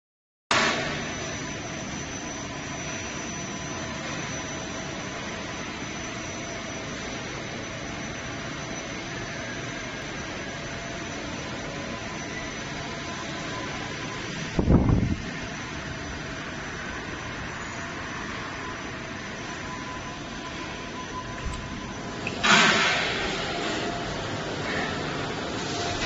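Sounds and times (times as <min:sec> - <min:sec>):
industrial machinery hum and hiss: 0:00.5 - 0:26.0
faint steady whines: 0:00.6 - 0:26.0.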